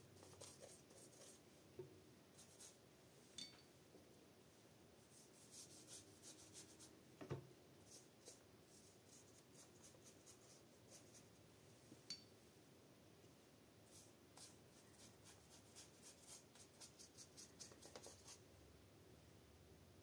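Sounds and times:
paintbrush scratching on paper: 0:00.2 - 0:01.4, 0:02.4 - 0:02.8, 0:05.1 - 0:06.9, 0:07.8 - 0:11.3, 0:13.9 - 0:18.4.

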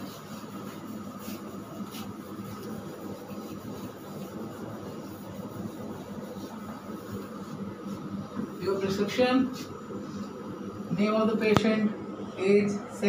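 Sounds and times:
eraser rubbing on whiteboard: 0:00.0 - 0:08.2
steady background hum: 0:00.0 - 0:13.0.

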